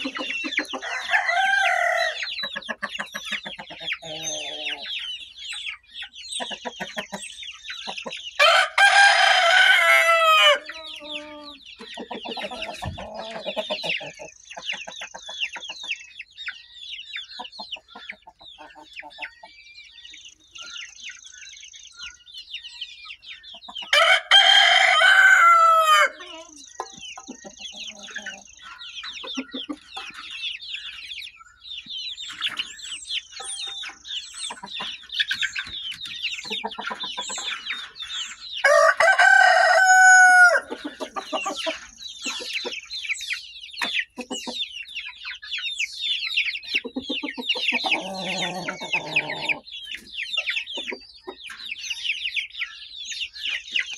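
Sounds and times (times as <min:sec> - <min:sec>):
chickens chirping and clucking: 0:00.0 - 0:53.9
rooster crowing: 0:00.8 - 0:02.3, 0:08.4 - 0:10.7, 0:23.9 - 0:26.2, 0:38.6 - 0:40.7.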